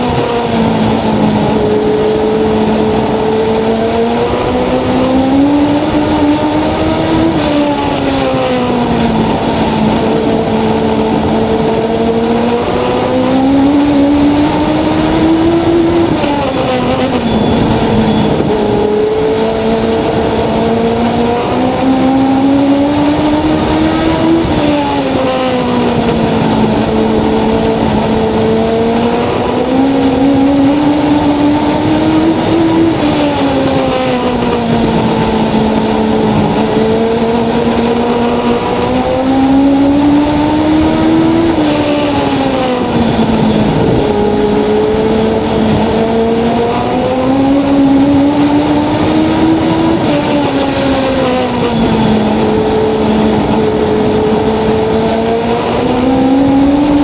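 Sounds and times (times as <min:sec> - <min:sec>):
race car engine: 0:00.0 - 0:57.0.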